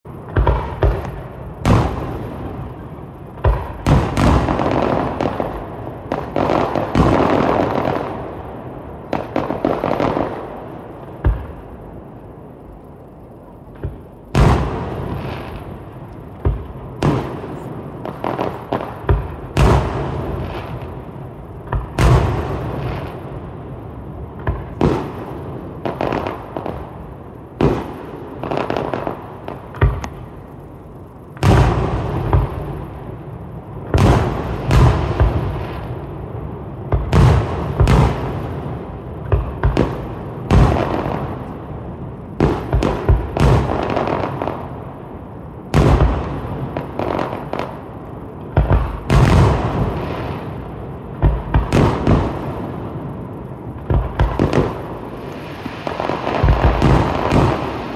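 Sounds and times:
firework crackles: 0.0s - 57.9s.

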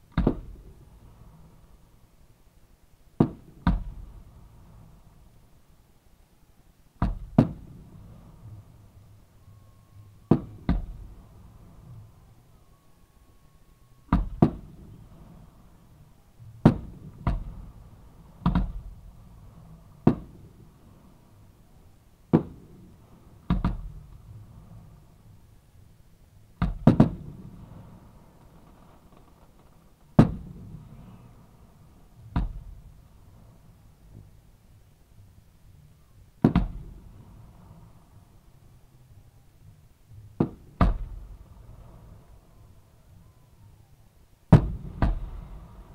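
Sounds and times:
fireworks booming: 0.1s - 1.7s, 3.2s - 5.2s, 7.0s - 12.6s, 14.1s - 25.4s, 26.6s - 34.4s, 36.4s - 38.3s, 40.2s - 43.4s, 44.5s - 45.9s.

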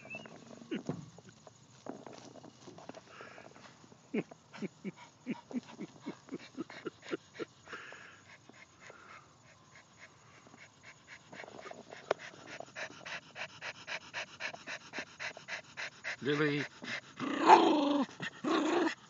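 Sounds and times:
dog panting quickly: 4.9s - 17.2s.

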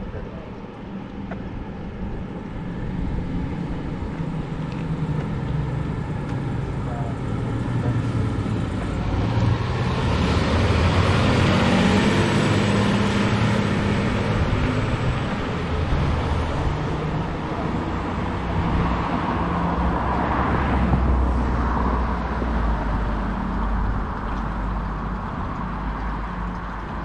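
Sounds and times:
fire engine driving past: 1.7s - 27.0s.

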